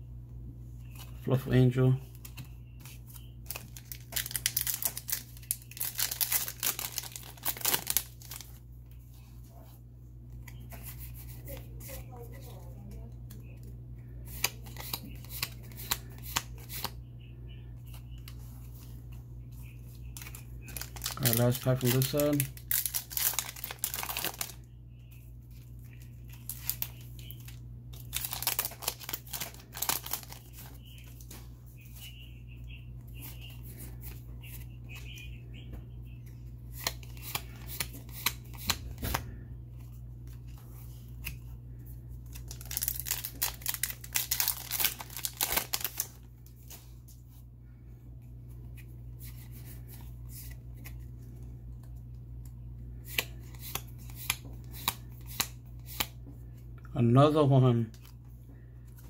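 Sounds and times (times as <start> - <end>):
low electrical hum: 0.0 - 59.0
foil wrapper crinkling and tearing: 3.4 - 8.6, 20.2 - 24.7, 26.0 - 31.3, 42.3 - 46.8.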